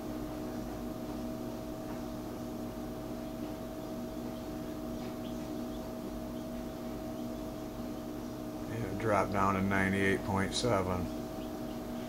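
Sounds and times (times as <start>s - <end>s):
computer fans whirring: 0.0s - 12.0s.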